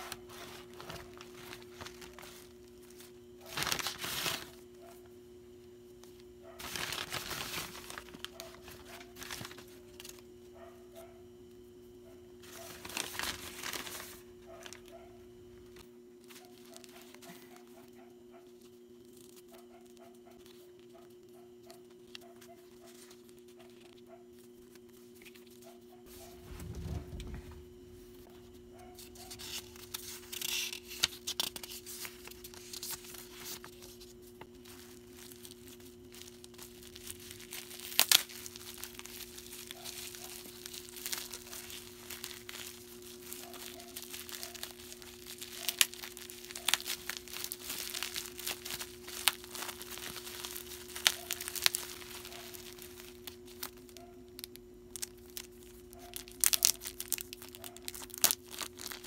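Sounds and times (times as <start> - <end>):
plastic and paper crinkling: 0.0 - 5.0, 6.0 - 10.3, 12.4 - 15.0, 15.6 - 59.0
low steady hum: 0.0 - 59.0.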